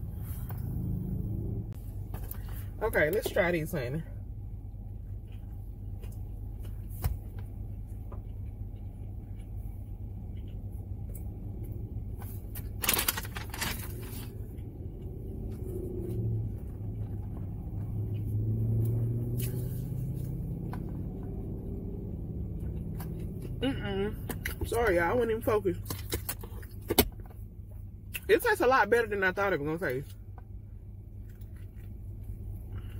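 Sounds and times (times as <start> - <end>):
low hum: 0.0 - 28.3
car interior rumble: 0.0 - 32.9
person chewing: 4.5 - 12.7, 14.2 - 23.6, 31.1 - 32.9.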